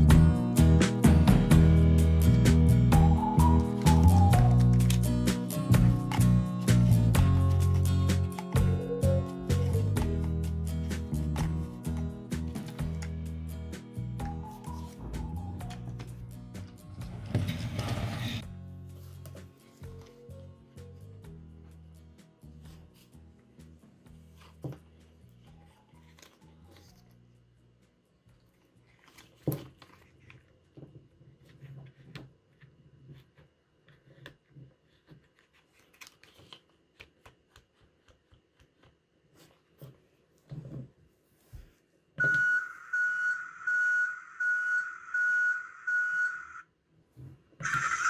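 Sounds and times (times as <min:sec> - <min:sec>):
quiet background music: 0:00.0 - 0:44.0
toy electronic sound effect: 0:42.2 - 0:46.6, 0:47.6 - 0:48.0
toy reversing-alarm beeps: 0:42.2 - 0:46.7, 0:47.6 - 0:48.0.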